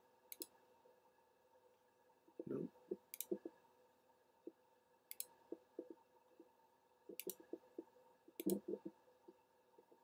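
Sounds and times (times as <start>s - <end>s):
computer mouse clicks: 0.3s - 0.6s, 2.9s - 3.6s, 4.4s - 6.5s, 7.1s - 10.0s.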